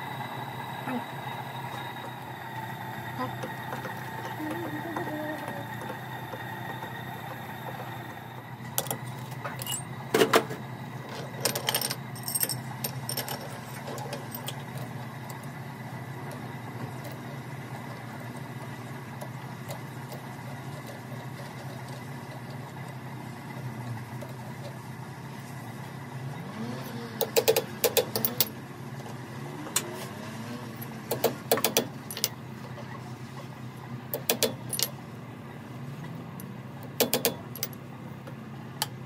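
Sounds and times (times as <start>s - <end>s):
low machine hum: 0.0s - 39.0s
metallic clinks and knocks: 8.8s - 9.9s, 11.1s - 14.9s, 34.2s - 35.0s, 37.0s - 37.8s.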